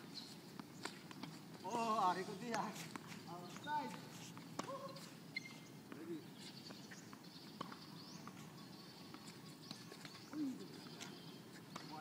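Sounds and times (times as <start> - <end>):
birds chirping: 0.1 - 12.0.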